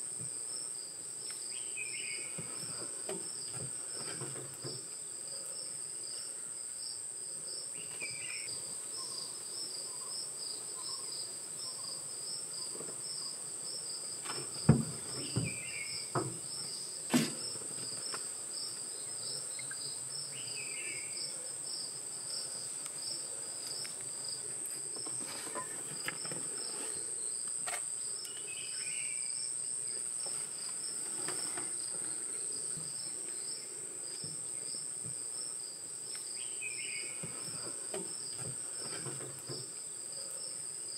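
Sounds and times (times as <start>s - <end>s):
insects high-pitched whine: 0.0s - 40.9s
rhythmic insect chirping: 4.6s - 38.7s
sharp knocks: 14.7s - 16.4s.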